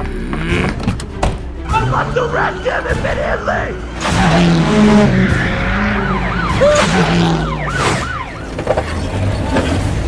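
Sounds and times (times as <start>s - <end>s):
car engine: 3.8s - 10.0s
police siren wailing: 4.7s - 9.0s.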